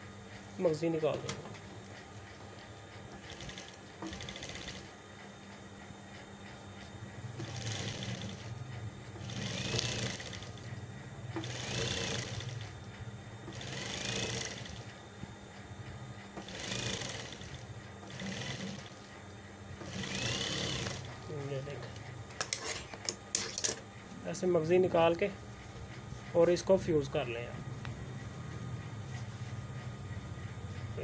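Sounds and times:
motor humming: 0:00.0 - 0:31.0
sewing machine stitching: 0:03.2 - 0:04.9, 0:07.4 - 0:08.5, 0:09.2 - 0:10.7, 0:11.4 - 0:12.8, 0:13.5 - 0:14.9, 0:16.4 - 0:19.0, 0:19.8 - 0:21.4.

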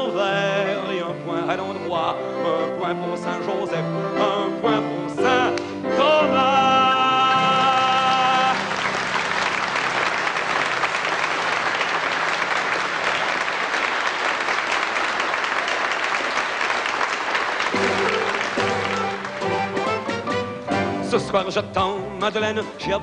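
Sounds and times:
audience applauding: 0:07.3 - 0:20.6
band playing: 0:17.4 - 0:23.0.

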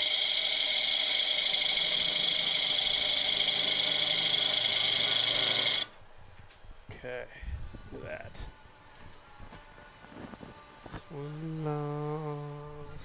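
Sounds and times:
gouge shearing wood: 0:00.0 - 0:05.9
lathe motor hum: 0:00.0 - 0:06.9.

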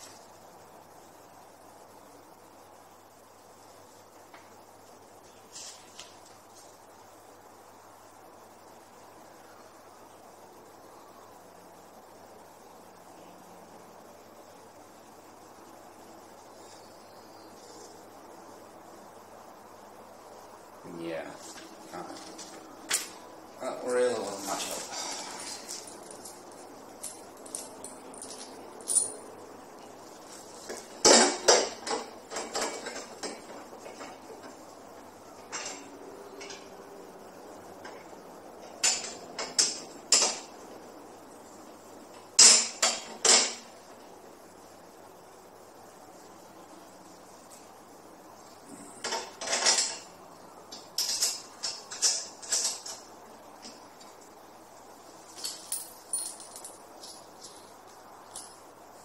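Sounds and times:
small metal parts clinking: 0:25.3 - 0:29.3, 0:51.0 - 0:53.1, 0:55.3 - 0:58.6.

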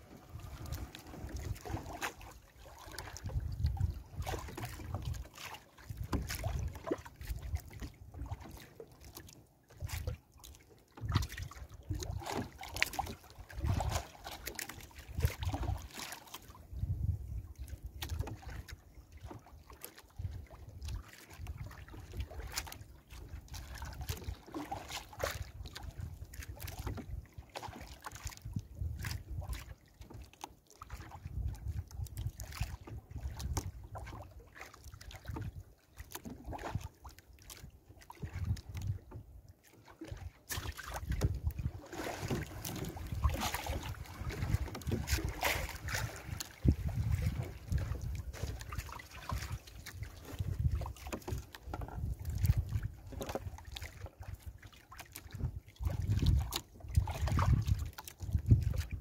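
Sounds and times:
wind on microphone: 0:03.0 - 0:05.3, 0:05.9 - 0:08.0, 0:16.7 - 0:18.7, 0:28.2 - 0:29.7, 0:31.0 - 0:34.1, 0:38.2 - 0:39.2, 0:40.8 - 0:53.8, 0:55.2 - 0:59.0.

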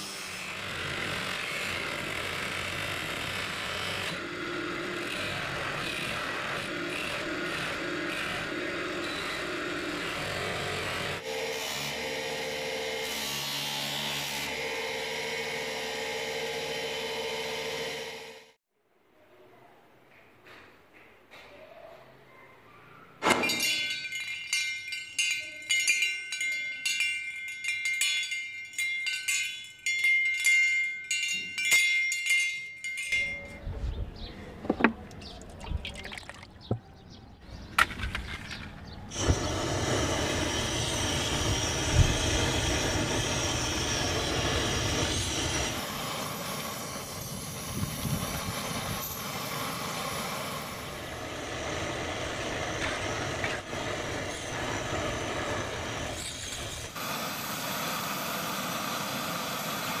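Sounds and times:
clicks and knocks: 0:34.6 - 0:35.2
gas burner hissing: 0:39.1 - 1:00.0.

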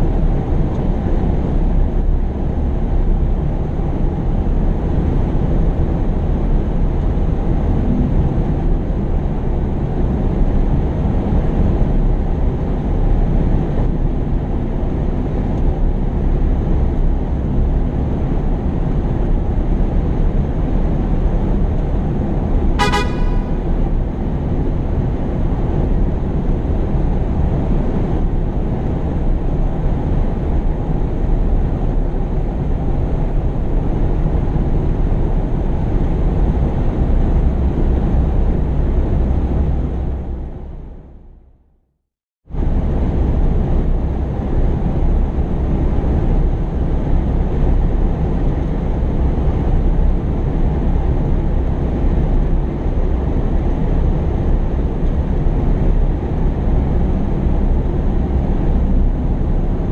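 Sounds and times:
short horn beep: 0:22.8 - 0:24.4.

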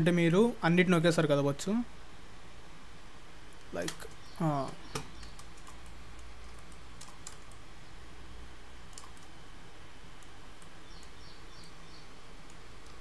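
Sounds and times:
computer mouse clicks: 0:04.9 - 0:07.6, 0:08.9 - 0:09.3, 0:12.4 - 0:13.0.

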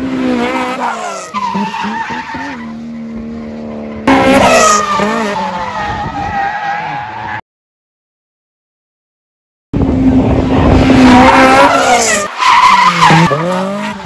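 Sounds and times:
car engines revving hard: 0:00.0 - 0:07.1, 0:09.8 - 0:14.0
tyres squealing and skidding: 0:00.4 - 0:03.1, 0:04.0 - 0:07.4, 0:11.0 - 0:14.0.

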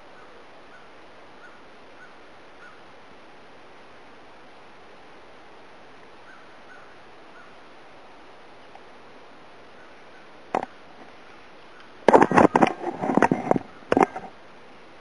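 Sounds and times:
faint short bird calls: 0:00.0 - 0:02.9, 0:06.2 - 0:07.6, 0:09.7 - 0:12.8
outdoor background hiss: 0:00.0 - 0:15.0.

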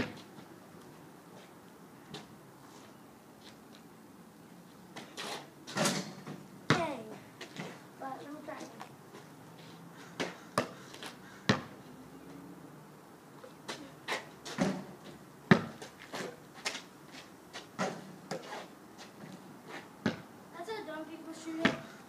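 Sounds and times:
basketball bouncing on pavement: 0:00.0 - 0:00.4, 0:04.9 - 0:09.3, 0:10.2 - 0:11.8, 0:13.7 - 0:16.9, 0:17.5 - 0:18.5, 0:20.0 - 0:20.3, 0:21.6 - 0:22.0.

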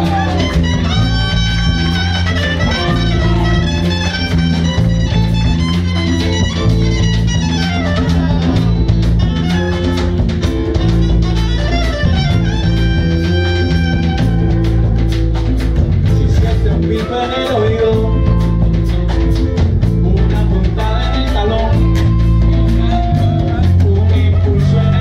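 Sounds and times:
trumpet lead: 0:00.0 - 0:15.1, 0:20.9 - 0:25.0
bass: 0:00.0 - 0:25.0
drum kit: 0:00.0 - 0:25.0
electric guitar: 0:00.0 - 0:25.0.

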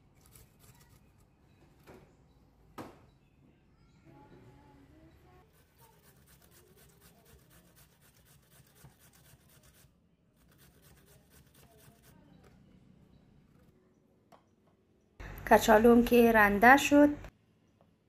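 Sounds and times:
potatoes scraping on metal grater: 0:05.5 - 0:12.2.

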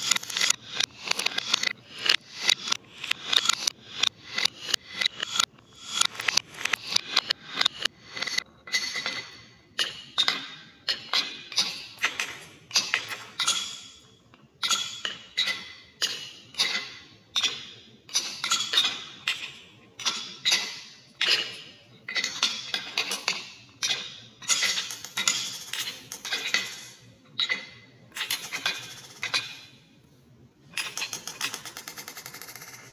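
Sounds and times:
marbles clacking on wooden chutes: 0:00.0 - 0:09.2, 0:24.5 - 0:27.1, 0:27.9 - 0:29.7, 0:30.8 - 0:32.9
marbles rolling on wood: 0:24.5 - 0:27.1, 0:28.2 - 0:29.7, 0:30.8 - 0:32.9.

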